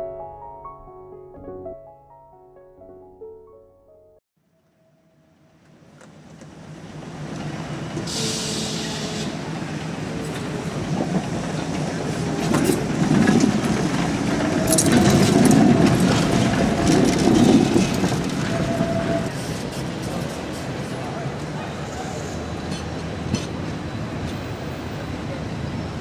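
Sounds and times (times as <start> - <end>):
tram rumbling past: 5.2 - 26.0
wheels clicking and rattling: 9.9 - 21.6.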